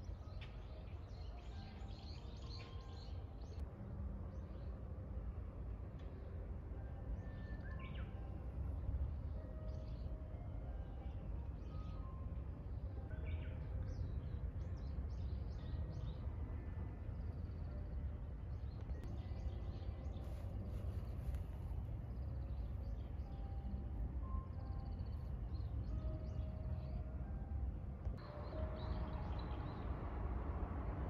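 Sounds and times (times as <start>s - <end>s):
steady low rumble: 12.6s - 31.0s.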